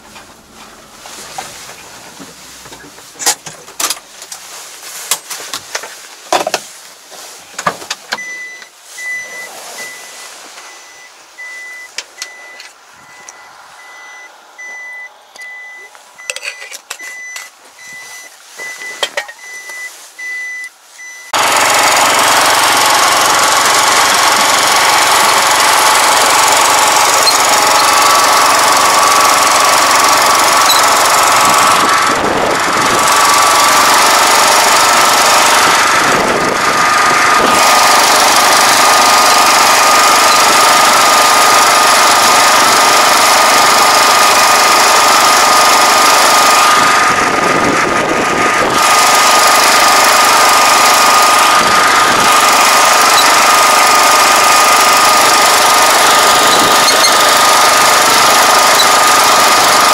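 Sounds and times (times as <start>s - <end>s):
high beeping: 8.1s - 31.9s, 52.3s - 59.9s
small engine running: 21.4s - 59.9s.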